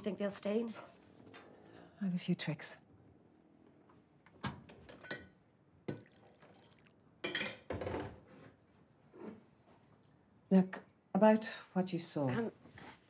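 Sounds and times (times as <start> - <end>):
dishes clinking at a sink: 4.9 - 6.2, 7.2 - 8.0.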